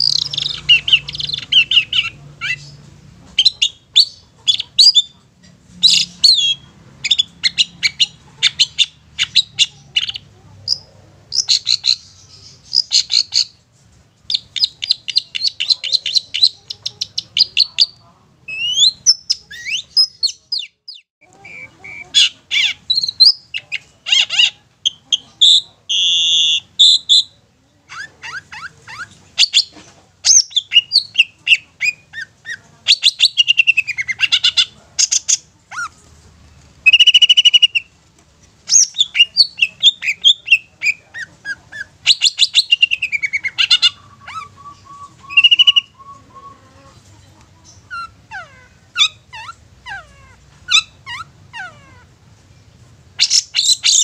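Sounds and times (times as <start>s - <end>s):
shrike singing: 0.0s - 5.2s, 14.3s - 27.4s, 38.7s - 52.1s.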